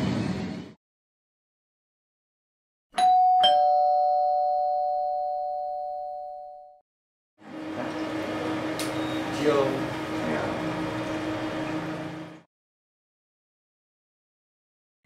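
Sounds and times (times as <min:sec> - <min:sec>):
two-tone doorbell chime: 0:03.0 - 0:06.8.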